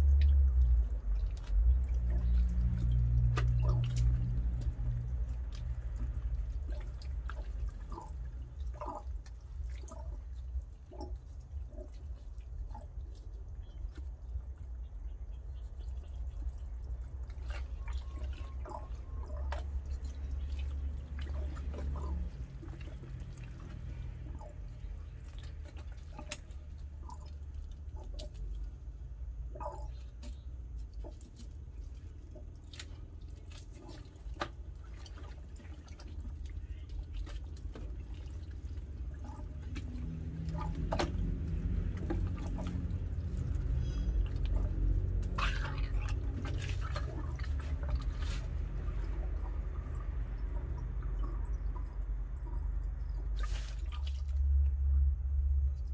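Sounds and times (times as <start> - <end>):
low steady hum: 0.0 - 55.9
soft wet clicks and drips: 0.0 - 55.9.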